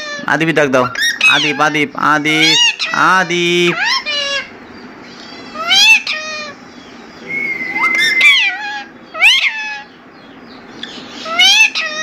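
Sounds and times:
parakeet meow-like calls: 0.0 - 0.3, 0.9 - 12.0
parakeet whistle-like note: 7.2 - 8.5.

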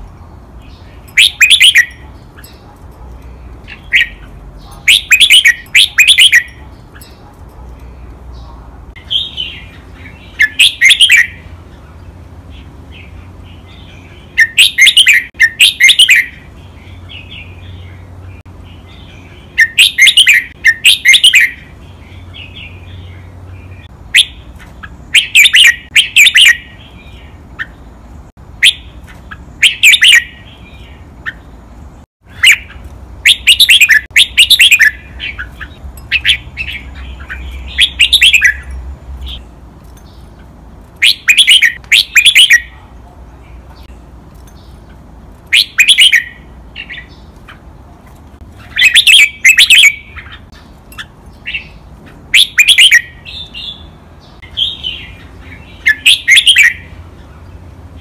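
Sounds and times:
bulbul singing whistled notes: 0.7 - 2.6, 3.6 - 7.2, 9.0 - 11.5, 13.0 - 18.0, 18.7 - 27.8, 28.6 - 31.4, 32.3 - 39.4, 41.0 - 42.7, 45.5 - 47.2, 48.6 - 51.8, 52.4 - 57.0.

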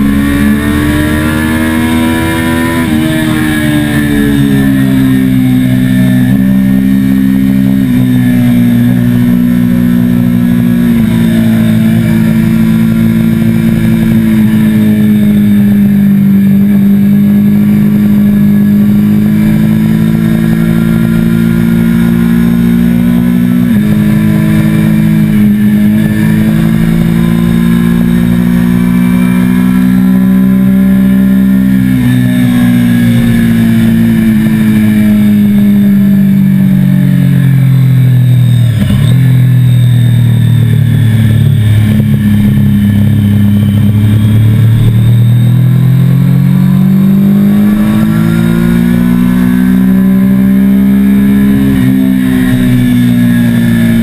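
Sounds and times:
motorcycle engine running hard: 0.0 - 54.0.

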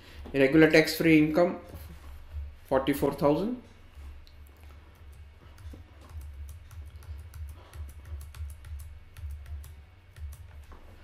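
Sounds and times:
keyboard typing and mouse clicks: 4.3 - 11.0.

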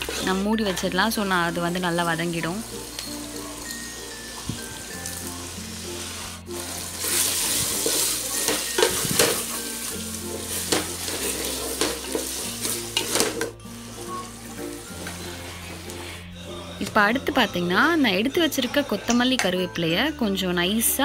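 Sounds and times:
spatula scraping a pot: 0.0 - 1.0, 5.8 - 16.3
vegetables sizzling in oil: 0.0 - 16.2.

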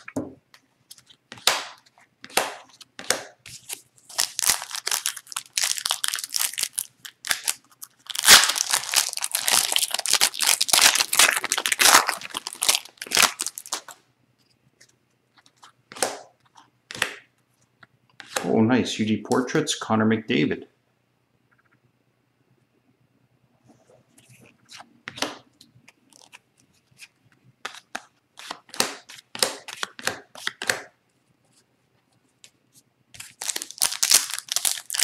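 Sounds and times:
trading cards rustling: 3.5 - 14.0, 25.9 - 30.7, 33.2 - 35.0
foil wrapper tearing and crinkling: 3.6 - 14.0, 33.2 - 35.0.

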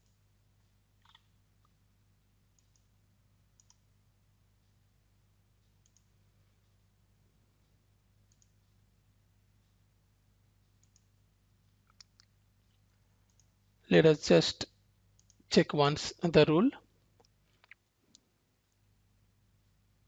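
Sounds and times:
low steady hum: 0.0 - 20.0
computer mouse clicks: 1.0 - 1.8, 2.5 - 2.9, 3.6 - 3.9, 5.7 - 6.2, 8.2 - 8.6, 10.7 - 11.2, 11.8 - 13.6, 15.2 - 15.5.

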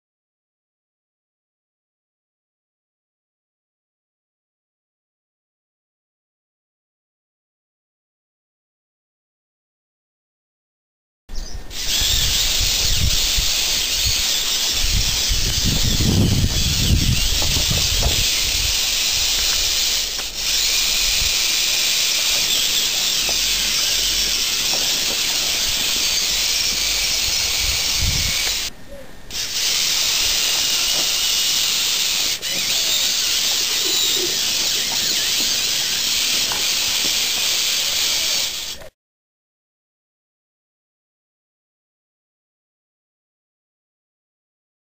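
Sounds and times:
toy truck motors whirring: 11.7 - 28.7, 29.3 - 38.9.

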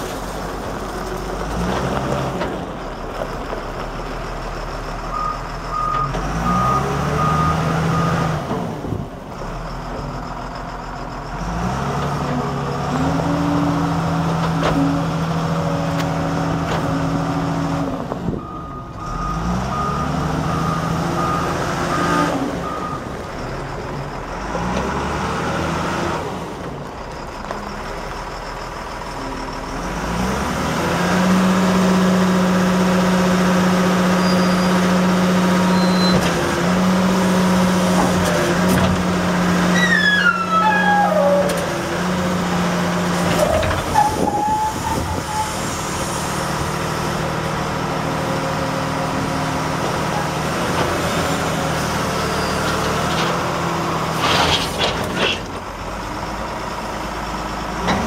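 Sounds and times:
loader diesel engine revving: 4.2 - 58.0
reversing alarm beeping: 18.4 - 23.1.

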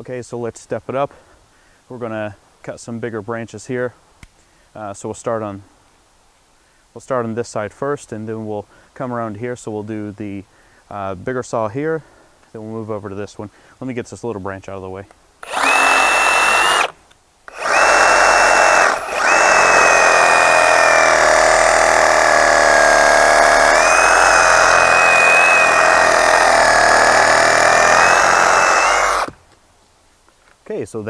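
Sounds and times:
reciprocating saw cutting wood: 15.4 - 29.4.

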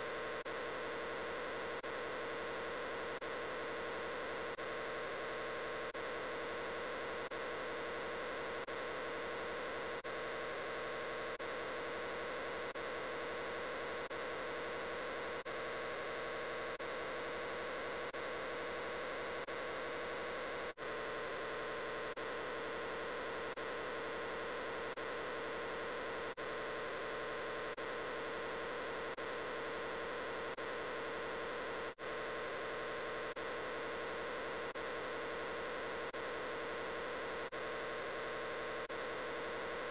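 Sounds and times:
hum: 0.0 - 39.9.

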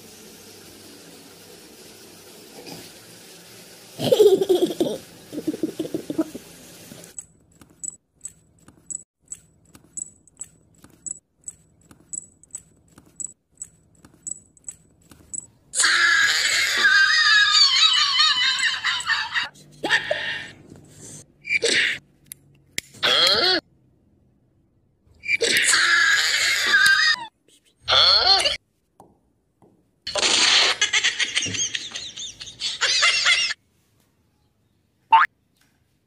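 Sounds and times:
loud laughing cry: 15.8 - 20.6.

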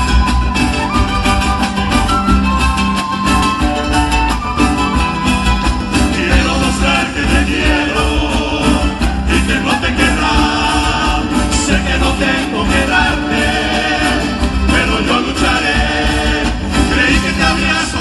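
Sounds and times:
steady drum beat: 0.0 - 18.0
strummed acoustic guitars: 0.0 - 18.0
men singing: 6.0 - 18.0.

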